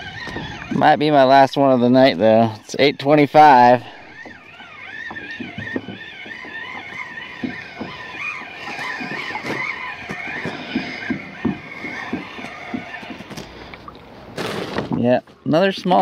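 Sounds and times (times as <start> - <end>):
fishing reel whining: 0.0 - 14.2
soft low knocks: 2.5 - 14.2.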